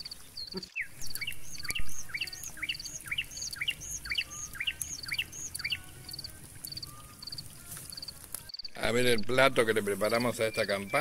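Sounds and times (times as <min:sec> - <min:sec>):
bird chirping: 0:00.0 - 0:11.0
faint ticking of insects: 0:01.0 - 0:08.8.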